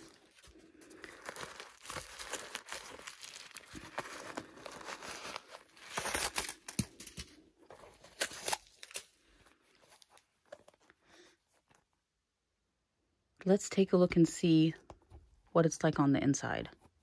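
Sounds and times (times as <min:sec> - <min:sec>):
tissue paper rustling: 0:00.0 - 0:11.7.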